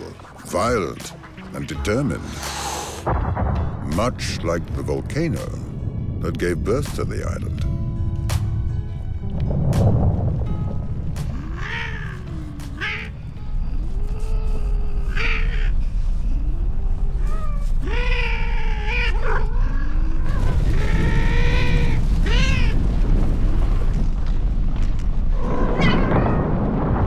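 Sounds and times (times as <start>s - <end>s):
volcano rumbling roar: 5.0s - 12.7s, 17.8s - 27.0s
cats yowling and screeching: 11.3s - 13.2s, 13.8s - 22.8s, 25.4s - 26.6s.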